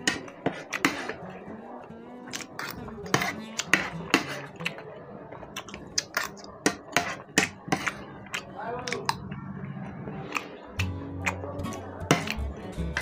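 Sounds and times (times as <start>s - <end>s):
metal spoon scraping a plate: 0.0s - 1.2s, 2.4s - 4.6s, 6.0s - 8.1s.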